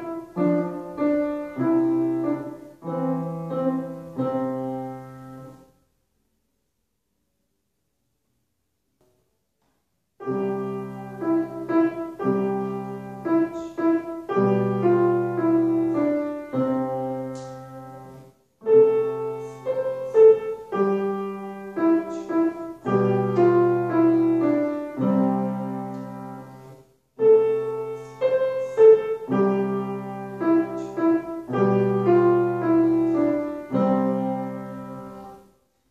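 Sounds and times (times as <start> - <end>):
slow solo piano piece: 0.0 - 5.7, 10.2 - 35.6.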